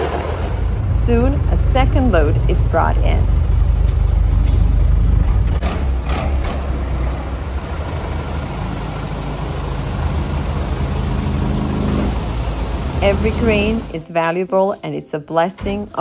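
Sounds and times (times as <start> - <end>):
truck engine running: 0.0 - 14.1
grain pouring with hiss: 7.3 - 14.9.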